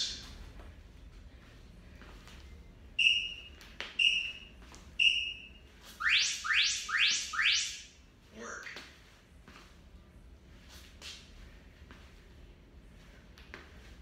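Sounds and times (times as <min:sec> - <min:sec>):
interval timer beeping: 0:03.0 - 0:07.8.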